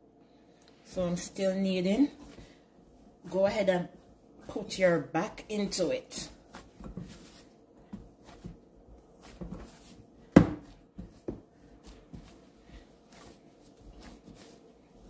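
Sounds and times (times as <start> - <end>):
dough thumping against glass bowl: 9.3 - 12.3.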